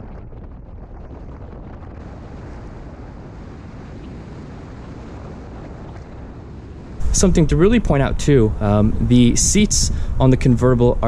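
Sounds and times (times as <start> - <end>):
wind buffeting microphone: 0.0 - 11.0
road noise: 7.0 - 11.0.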